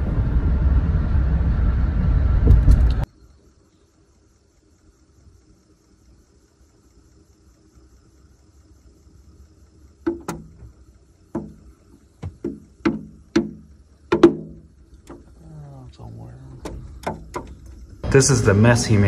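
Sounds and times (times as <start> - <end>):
faint steady hum: 0.0 - 19.0
bird pecking on roof: 10.0 - 15.4, 16.6 - 17.9.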